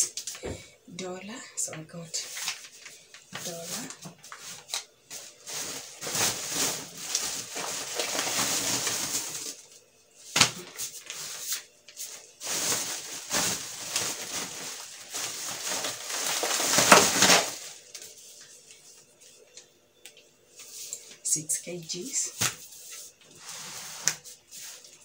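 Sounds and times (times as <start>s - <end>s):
plastic packaging crinkling: 2.2s - 18.8s.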